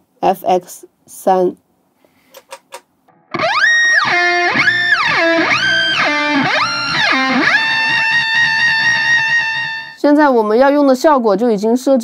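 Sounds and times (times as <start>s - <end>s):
electric guitar pitch gliding: 3.1s - 10.0s.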